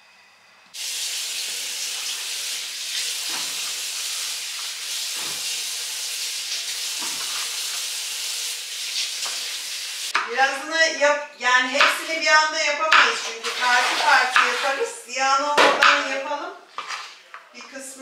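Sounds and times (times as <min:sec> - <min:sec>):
food sizzling in a pan: 0:00.8 - 0:10.2.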